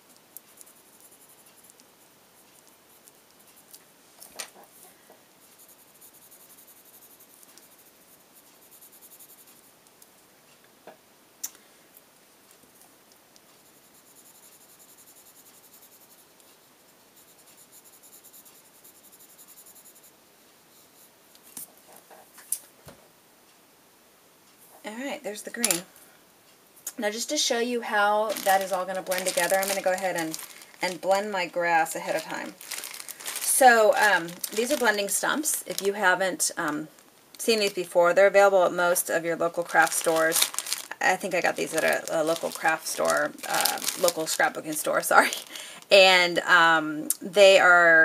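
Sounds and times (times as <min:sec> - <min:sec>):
pencil scratching across card: 0:00.5 - 0:03.7, 0:05.4 - 0:09.7, 0:13.6 - 0:20.2.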